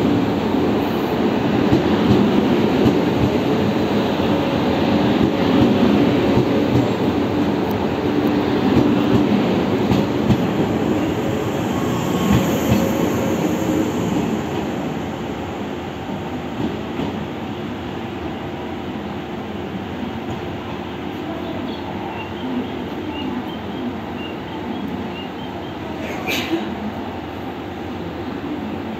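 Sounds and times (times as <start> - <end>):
train rolling past: 0.0 - 28.9.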